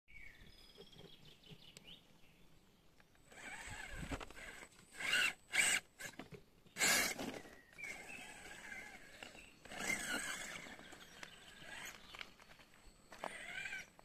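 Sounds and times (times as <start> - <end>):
birds chirping: 0.1 - 14.0
electric motor whining: 3.3 - 6.2, 6.8 - 12.2, 13.1 - 14.0.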